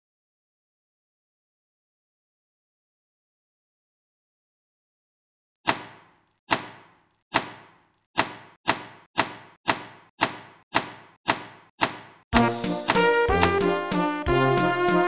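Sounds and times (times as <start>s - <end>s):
brass music: 12.4s - 15.0s.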